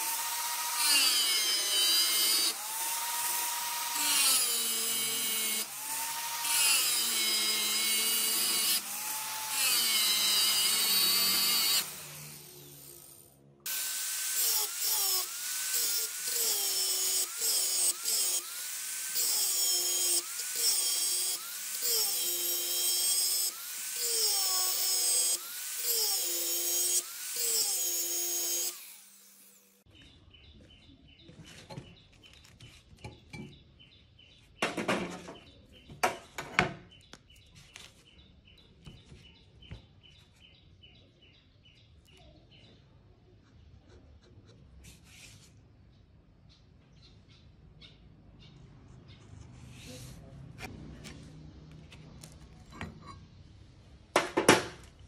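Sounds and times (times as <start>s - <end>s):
angle grinder cutting steel: 0.0s - 29.8s.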